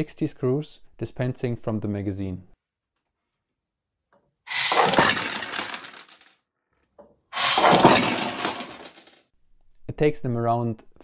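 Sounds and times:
screws clattering out: 4.5s - 6.3s, 7.4s - 9.2s.

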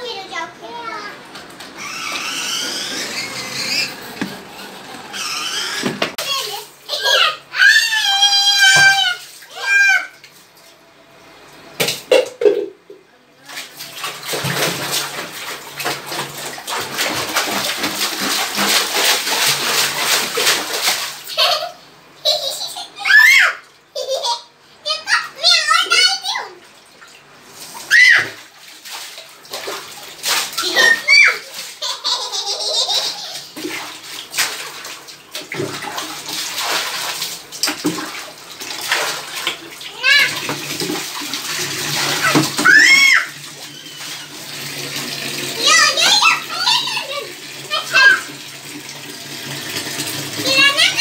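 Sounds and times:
water sloshing and splashing: 13.4s - 21.5s, 26.0s - 51.0s
feet splashing in water: 13.6s - 21.2s, 33.6s - 39.8s.

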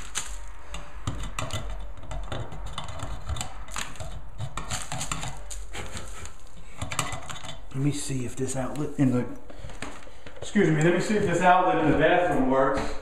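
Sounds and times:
screwdriver clicking and scraping: 0.0s - 7.8s.

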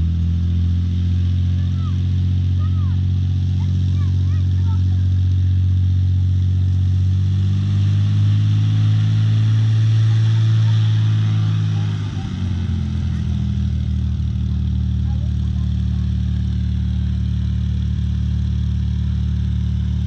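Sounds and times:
aircraft piston engine running: 7.3s - 20.0s.

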